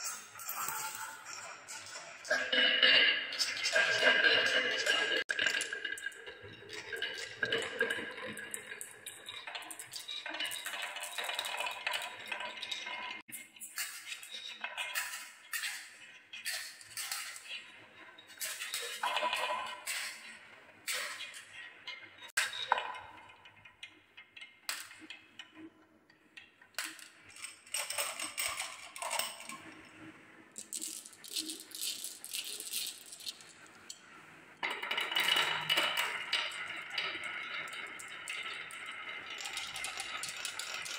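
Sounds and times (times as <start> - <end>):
marbles clicking and clinking: 0.0 - 2.0, 4.9 - 13.0, 30.6 - 34.0, 34.6 - 40.9
glass marbles rolling on wooden tracks: 0.0 - 2.4, 3.0 - 21.6, 26.8 - 29.8, 30.5 - 34.0, 34.6 - 40.9
marbles clicking on wood: 30.6 - 33.6
marbles rattling: 30.6 - 33.9.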